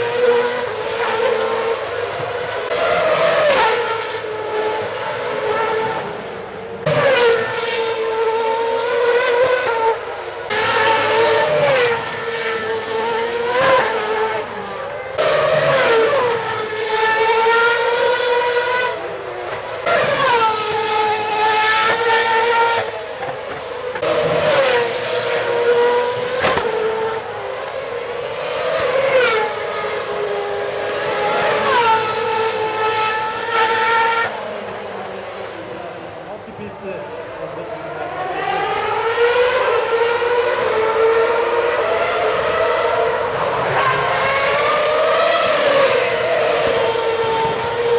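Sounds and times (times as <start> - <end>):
racing car engines passing: 0.0 - 47.9.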